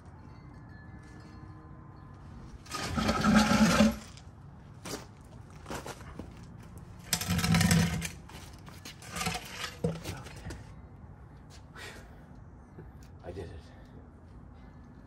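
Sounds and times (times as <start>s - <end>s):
heavy metal scraping on concrete: 2.6s - 4.3s, 7.0s - 10.4s.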